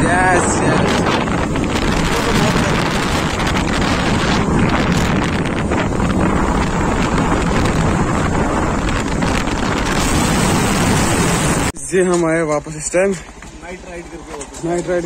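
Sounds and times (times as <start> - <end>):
motorbike rumble: 0.0 - 11.7
wind rushing over microphone: 0.0 - 11.8.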